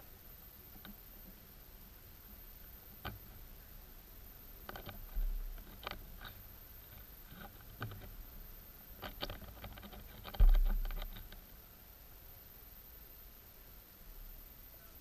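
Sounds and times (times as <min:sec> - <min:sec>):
faint underwater clicks: 0:00.4 - 0:01.5, 0:04.4 - 0:11.6
low muffled thuds: 0:10.2 - 0:11.3.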